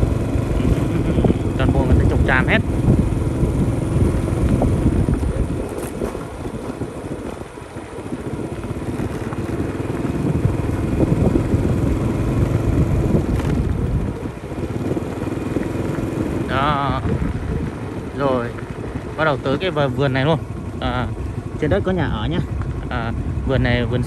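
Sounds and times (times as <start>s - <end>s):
motorbike engine running: 0.0s - 24.0s
wind buffeting microphone: 0.0s - 24.0s.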